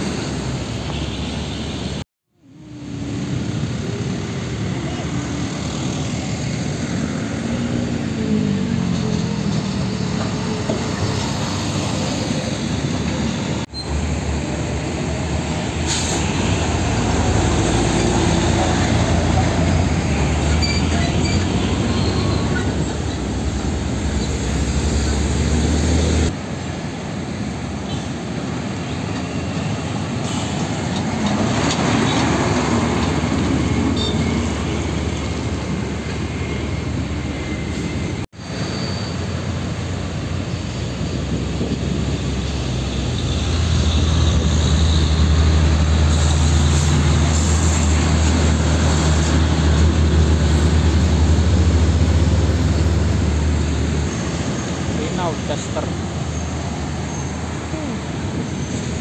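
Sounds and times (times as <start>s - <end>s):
heavy diesel trucks driving past: 1.4s - 59.0s.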